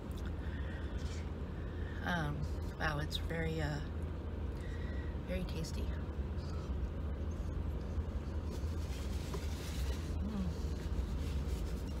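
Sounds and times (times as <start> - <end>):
paper napkin rustling: 8.1 - 12.0.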